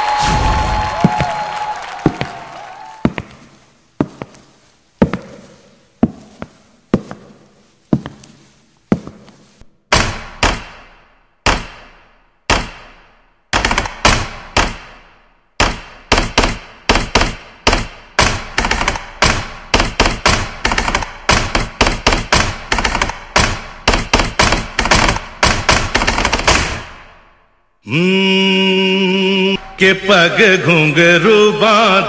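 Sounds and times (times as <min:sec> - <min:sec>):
tap dance taps echoing: 0:01.0 - 0:07.4.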